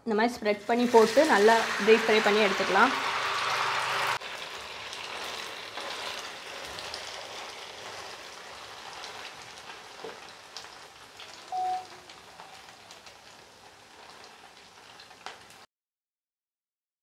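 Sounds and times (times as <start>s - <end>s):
noodles deep-frying in oil: 0.3s - 15.7s
short steady tone: 11.5s - 11.9s.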